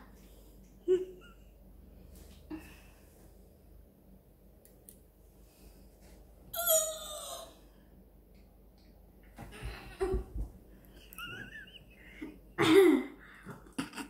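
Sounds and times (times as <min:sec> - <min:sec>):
child crying out: 0:06.6 - 0:07.6.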